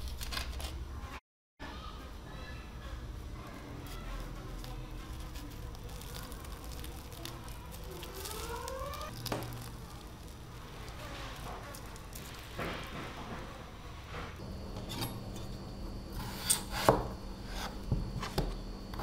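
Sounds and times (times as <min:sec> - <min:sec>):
paper and sugar crackling: 0:00.0 - 0:01.2, 0:03.2 - 0:13.7.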